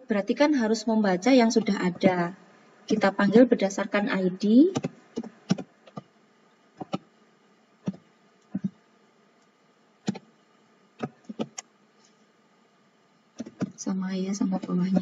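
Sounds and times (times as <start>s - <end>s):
computer keyboard keystrokes: 4.7s - 6.0s, 11.0s - 11.6s, 13.4s - 13.8s.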